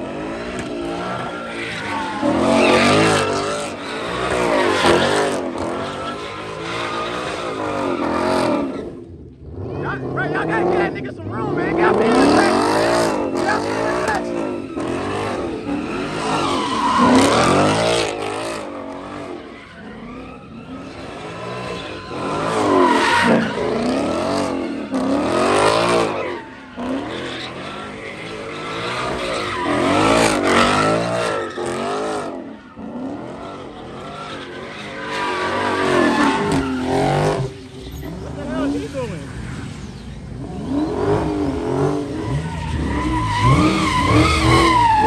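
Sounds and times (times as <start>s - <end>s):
car engine revving: 0.0s - 45.0s
tyres squealing: 40.7s - 45.0s.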